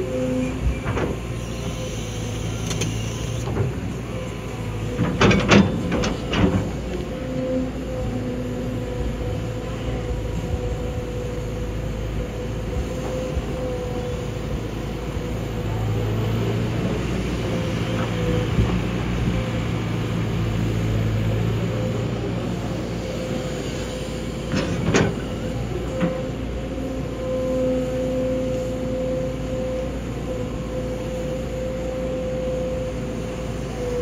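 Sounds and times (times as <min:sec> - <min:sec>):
excavator engine droning: 0:00.0 - 0:34.0.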